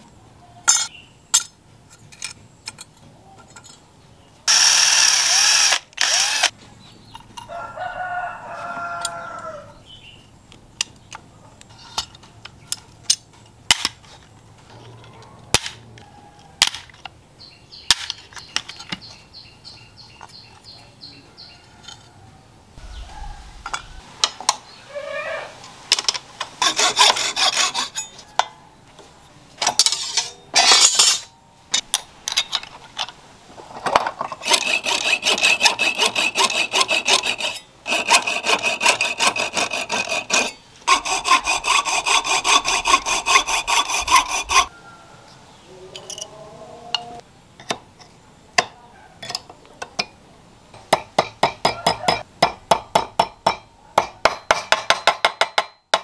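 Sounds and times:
hacksaw cutting metal: 26.6s - 28.2s, 29.7s - 31.3s, 34.4s - 44.7s
hammer tapping metal: 50.9s - 56.0s.

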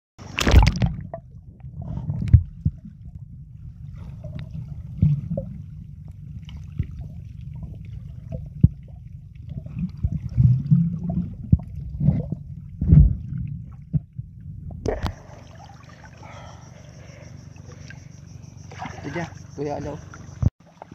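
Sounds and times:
muffled underwater rumble: 0.2s - 20.5s
bubbling gurgles: 0.3s - 16.6s
underwater knocks and clicks: 0.4s - 3.4s, 4.1s - 15.2s
water lapping: 14.9s - 20.9s.

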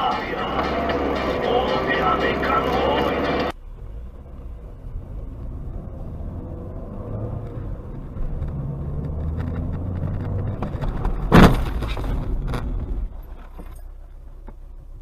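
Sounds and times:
car engine and tyres rumbling: 0.0s - 15.0s
loud car collision bang: 11.0s - 12.8s.

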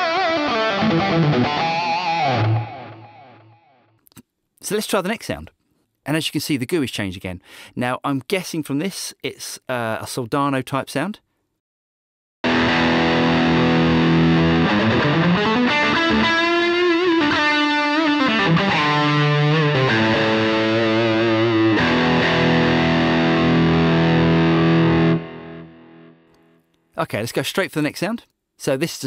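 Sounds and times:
distorted electric guitar lead: 0.0s - 3.9s, 12.4s - 26.2s.

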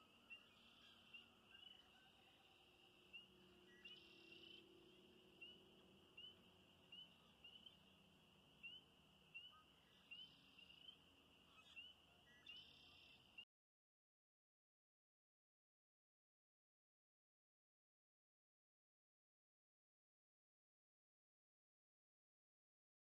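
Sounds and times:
spring peepers chorus: 0.0s - 13.5s.

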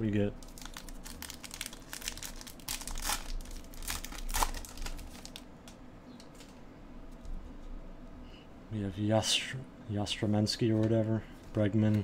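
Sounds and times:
cards rustling: 0.4s - 5.4s
card pack wrapper crackling: 0.4s - 5.5s.

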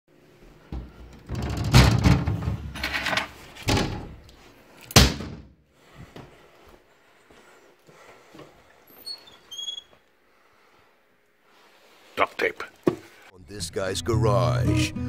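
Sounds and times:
knocks and thuds: 0.7s - 2.8s.

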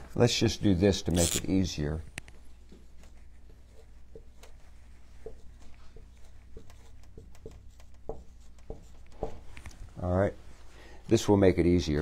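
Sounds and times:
marker writing on whiteboard: 2.4s - 10.0s.

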